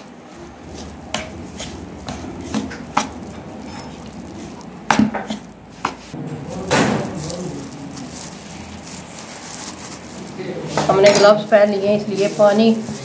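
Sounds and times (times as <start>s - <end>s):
spoon scraping bowl: 0.4s - 6.2s.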